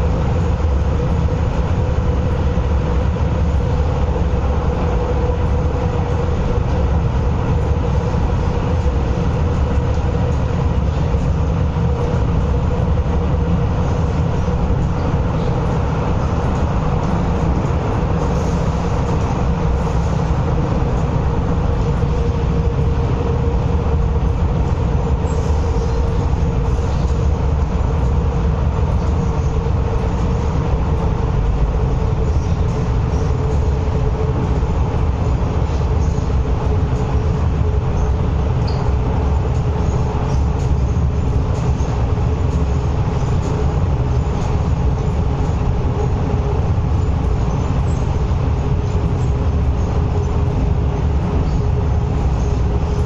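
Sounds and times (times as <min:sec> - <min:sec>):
constant hum: 0:00.0 - 0:53.0
train rumbling on track: 0:00.0 - 0:53.0.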